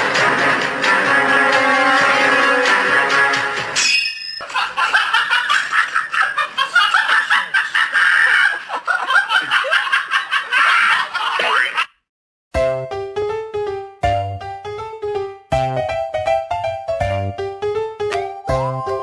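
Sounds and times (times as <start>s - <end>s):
high-pitched laughter and giggling: 4.4s - 11.9s.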